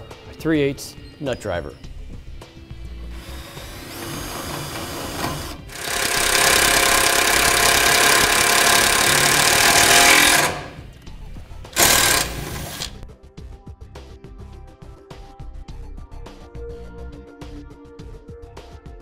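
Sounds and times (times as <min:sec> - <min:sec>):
cordless driver motor whine: 0:03.2 - 0:10.9, 0:11.8 - 0:13.0.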